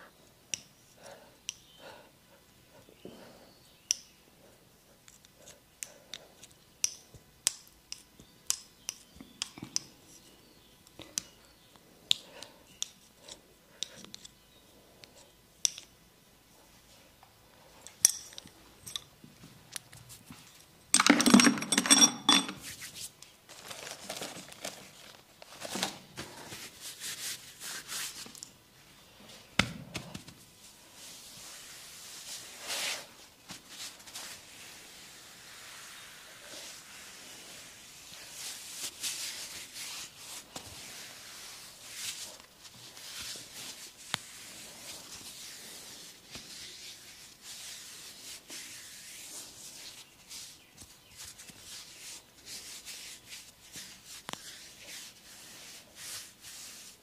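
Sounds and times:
hands rubbing: 0:26.4 - 0:28.5, 0:30.9 - 0:57.0.

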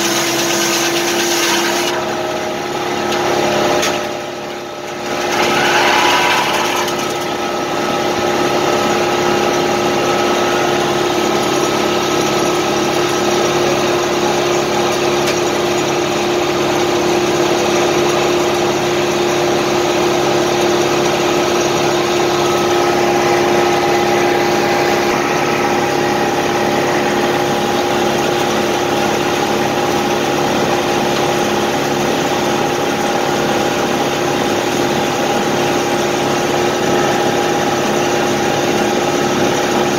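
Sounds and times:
rush of noise: 0:05.2 - 0:07.3.

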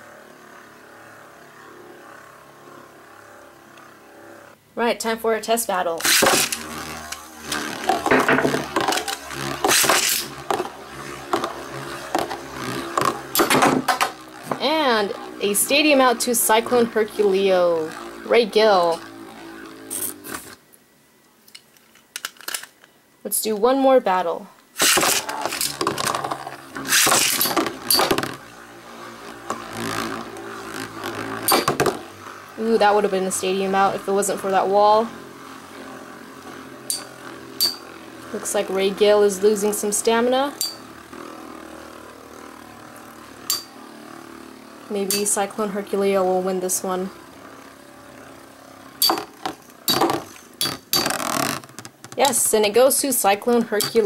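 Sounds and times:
spinning tops whirring and scraping: 0:00.0 - 0:04.6, 0:05.2 - 0:20.6, 0:21.5 - 0:54.0
spinning top launcher rip: 0:05.9 - 0:20.6, 0:24.7 - 0:54.0
spinning tops clashing: 0:06.0 - 0:14.6, 0:24.8 - 0:28.4, 0:31.4 - 0:32.0, 0:36.9 - 0:37.9, 0:49.0 - 0:52.6.

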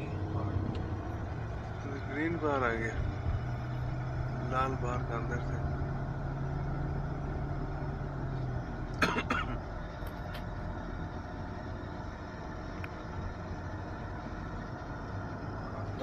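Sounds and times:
car engine and road hum: 0:00.0 - 0:16.0.

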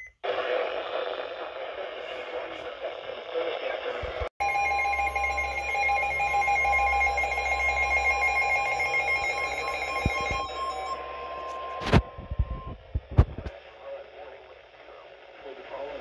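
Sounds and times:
shrill emergency alert tones: 0:04.4 - 0:12.7.

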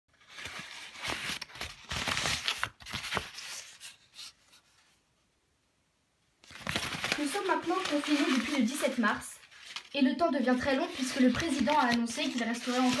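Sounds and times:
rustling and scraping: 0:06.6 - 0:13.0.

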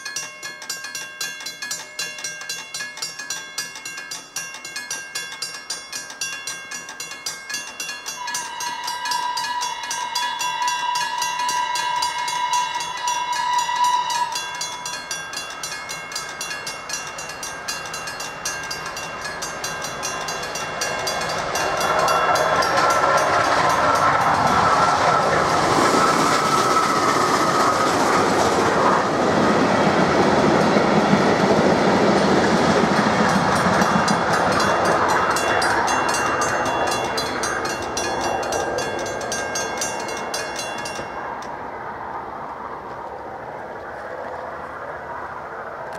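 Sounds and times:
crossing warning bell ringing: 0:00.0 - 0:42.3
train rumbling over crossing: 0:00.0 - 0:45.9
steam train whistle: 0:08.1 - 0:15.2.

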